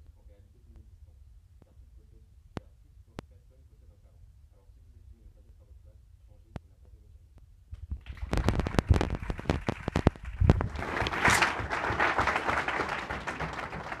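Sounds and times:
audience applauding: 8.0 - 14.0.

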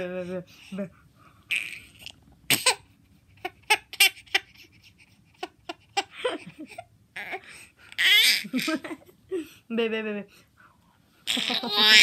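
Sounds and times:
baby giggling: 5.4 - 7.4, 8.0 - 9.1, 11.3 - 12.0.

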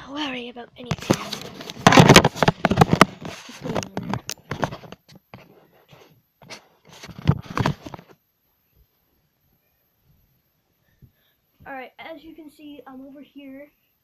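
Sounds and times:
fabric rustling on microphone: 0.9 - 8.2.

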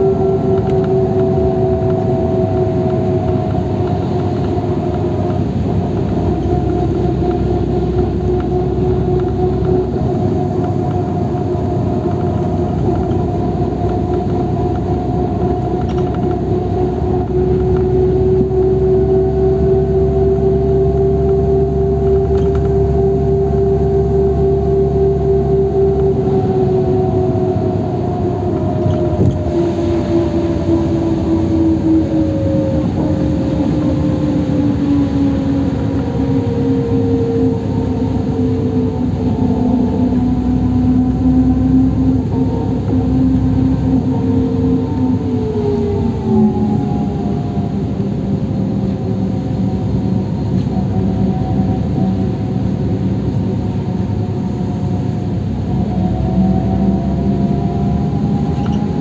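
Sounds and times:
bus engine and tyre rumble: 0.0 - 59.0
steady bus whine: 0.0 - 59.0.

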